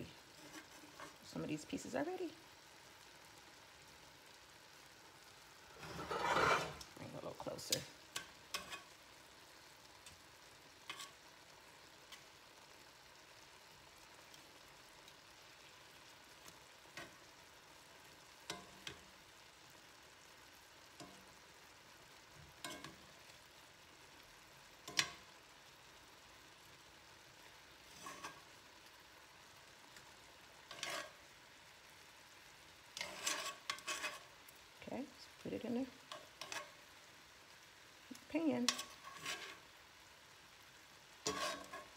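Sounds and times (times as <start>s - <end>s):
food sizzling in a skillet: 0.0s - 41.9s
metal tongs clicking on pan: 7.5s - 9.0s, 18.5s - 19.1s, 21.0s - 21.3s, 22.6s - 23.1s, 24.8s - 25.3s, 30.7s - 31.2s, 36.1s - 36.8s, 38.6s - 39.4s.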